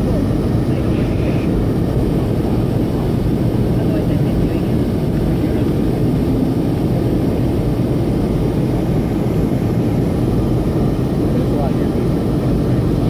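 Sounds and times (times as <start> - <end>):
airliner engines droning in cabin: 0.0 - 13.0.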